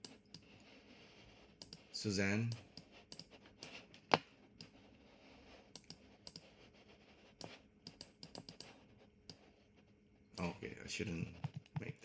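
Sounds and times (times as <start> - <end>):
computer mouse clicks: 1.6 - 1.9, 2.5 - 4.8, 5.7 - 6.5, 7.4 - 9.4.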